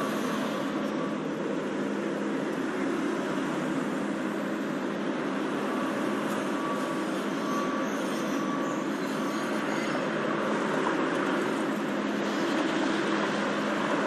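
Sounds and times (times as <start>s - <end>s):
city traffic rumble: 0.0s - 14.0s.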